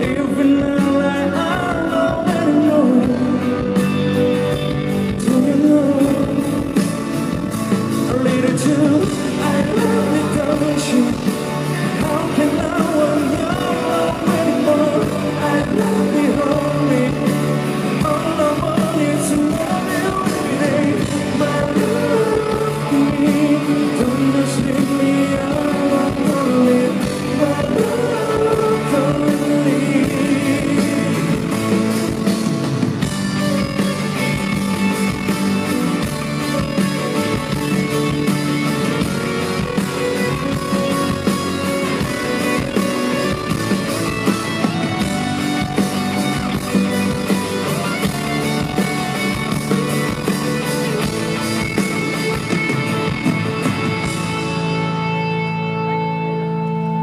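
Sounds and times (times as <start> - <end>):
person singing: 0.0 - 35.4.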